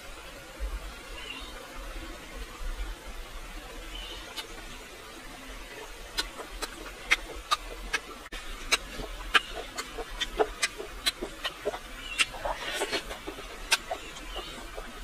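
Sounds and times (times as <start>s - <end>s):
lip smacks and sucking: 6.0s - 15.0s
chewing clicks: 6.1s - 15.0s.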